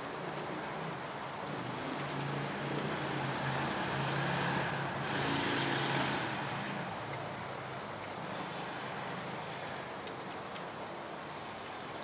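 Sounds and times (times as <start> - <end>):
vehicle engine hum: 0.0 - 11.1
faint clicks: 9.6 - 11.0.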